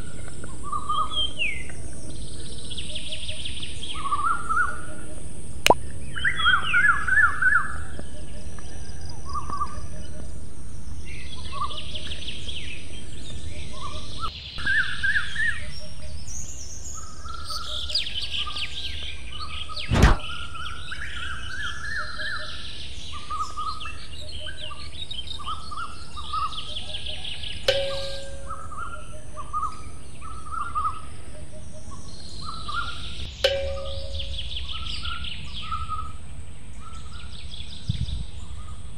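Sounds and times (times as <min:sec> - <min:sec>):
small birds chirping and twittering: 0:00.0 - 0:38.9
sharp click: 0:19.9 - 0:20.3.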